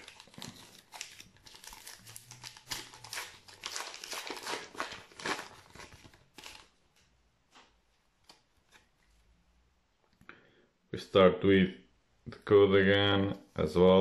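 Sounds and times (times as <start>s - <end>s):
wrapper tearing and crinkling: 0.0s - 6.8s.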